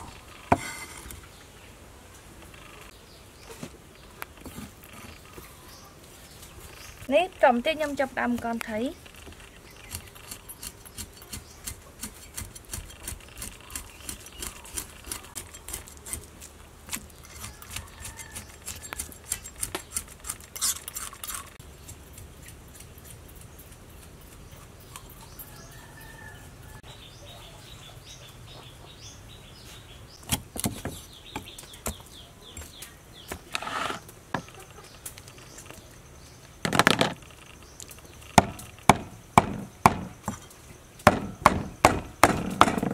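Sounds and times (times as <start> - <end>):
cleaver clicking and scraping: 8.4 - 25.4, 32.6 - 35.8
heavy chops into wooden block: 38.4 - 40.2.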